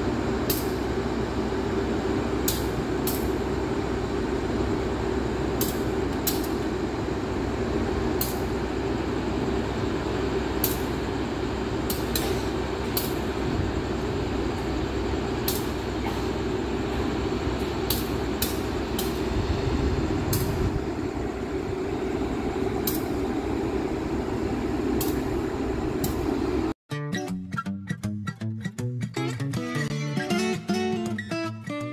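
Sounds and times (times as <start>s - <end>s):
diesel locomotive idling: 0.0s - 26.8s.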